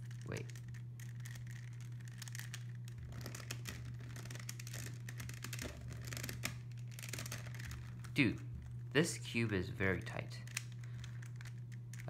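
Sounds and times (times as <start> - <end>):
low hum: 0.0 - 12.0
plastic puzzle cube clicking: 10.4 - 12.0.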